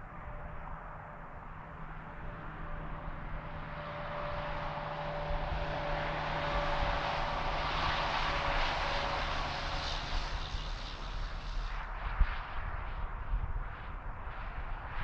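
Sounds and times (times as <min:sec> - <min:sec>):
vehicle passing: 0:03.4 - 0:11.2.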